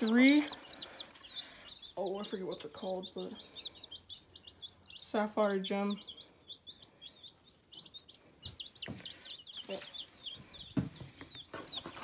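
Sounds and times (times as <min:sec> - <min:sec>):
baby chicks peeping: 0:00.0 - 0:12.0.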